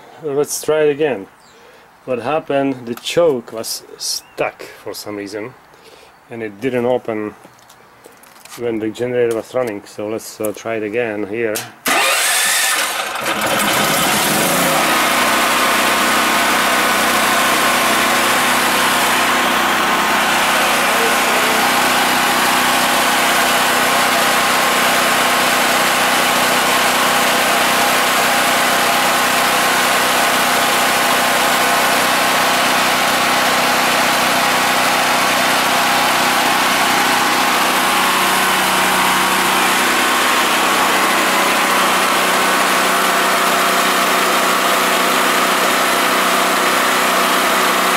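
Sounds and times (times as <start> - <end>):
generator engine running: 11.6 - 47.9.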